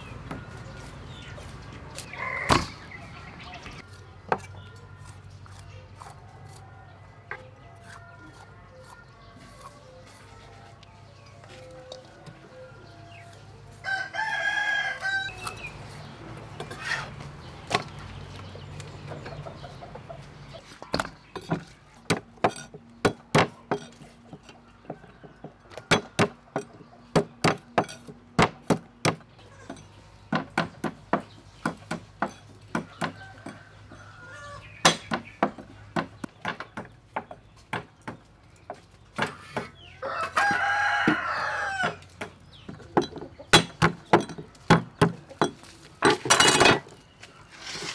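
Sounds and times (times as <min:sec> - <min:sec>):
rooster crowing: 0:13.8 - 0:15.6, 0:32.9 - 0:34.7, 0:40.0 - 0:42.0.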